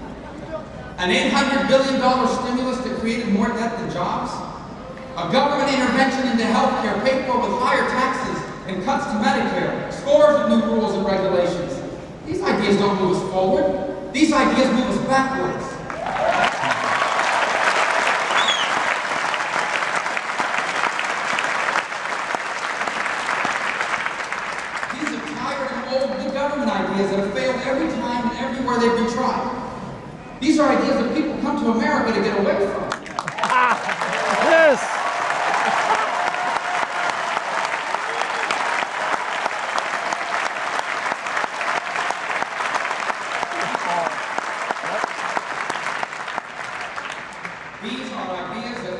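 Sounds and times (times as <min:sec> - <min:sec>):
audience applauding: 0:15.9 - 0:25.7, 0:32.9 - 0:48.0.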